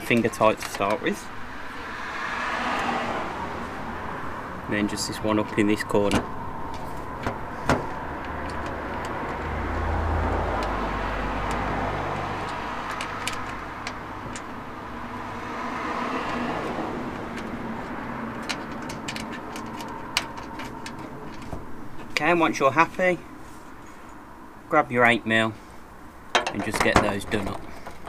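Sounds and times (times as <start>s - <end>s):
low vehicle rumble: 0.0s - 24.7s
road traffic noise: 0.0s - 28.0s
nut being threaded by hand: 10.5s - 10.8s.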